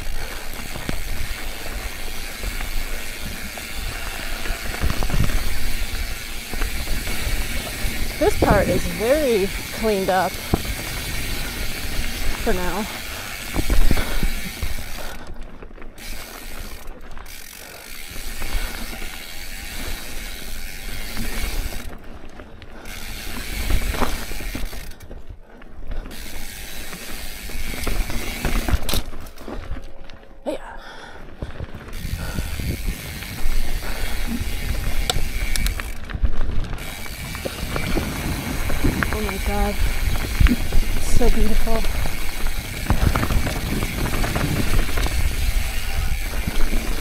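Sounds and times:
bicycle freehub clicking: 0.0s - 30.2s, 31.4s - 47.0s
bike rattling: 0.0s - 47.0s
tyres rumbling over dirt and rock: 34.4s - 47.0s.

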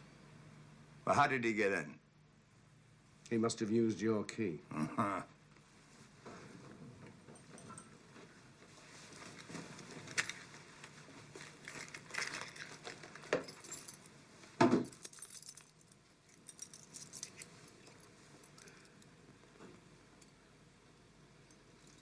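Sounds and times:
keys jingling: 11.5s - 14.1s, 14.9s - 19.1s.

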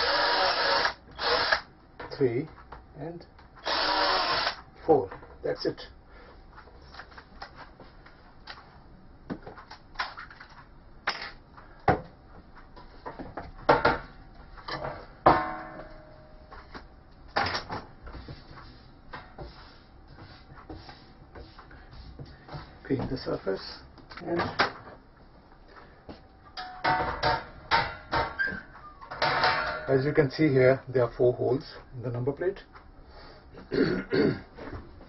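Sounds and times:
metal clank ringing: 15.3s - 16.3s, 26.6s - 28.4s.

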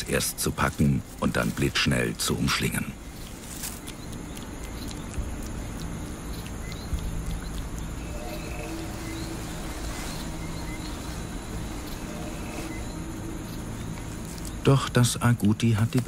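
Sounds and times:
forest ambience: 0.0s - 16.0s
high chirps: 2.8s - 14.8s
low droning tones: 2.9s - 15.2s.

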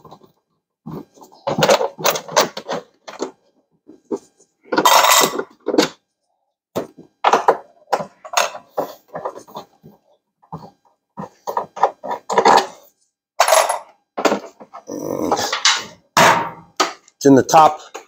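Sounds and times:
hand tools and bolts clattering: 4.7s - 5.9s
metal tools clinking in tray: 4.8s - 5.5s.

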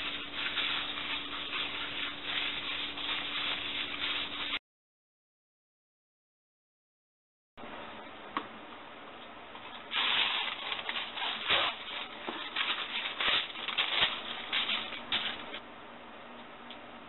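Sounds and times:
parchment paper rustling: 0.0s - 4.6s, 9.6s - 15.6s.

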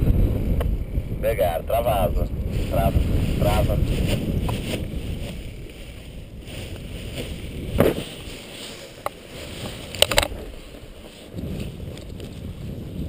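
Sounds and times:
wind rumbling on microphone: 0.0s - 13.0s
sharp knocks on ground: 7.7s - 8.1s.

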